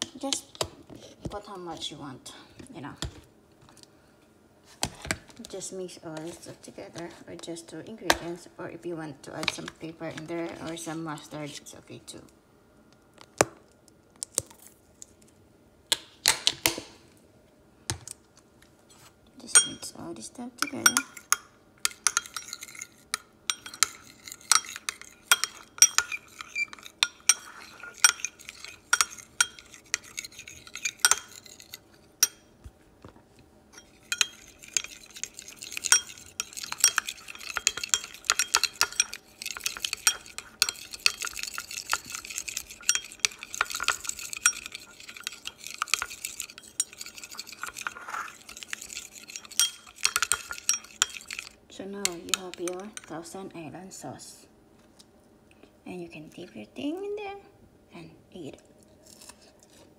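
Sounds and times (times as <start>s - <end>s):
fork clinking and scraping glass bowl: 19.5s - 19.9s, 20.6s - 32.5s, 33.7s - 53.1s.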